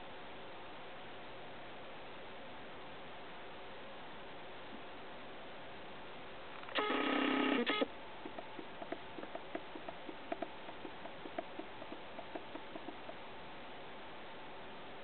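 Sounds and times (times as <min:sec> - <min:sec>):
steady hiss: 0:00.0 - 0:15.0
camera zoom motor whirring: 0:06.6 - 0:13.0
faint irregular ticks: 0:06.6 - 0:13.3.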